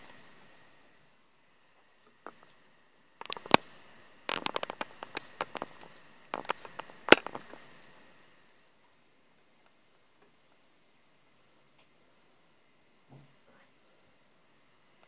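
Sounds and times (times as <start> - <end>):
hot oil popping: 3.2 - 8.0.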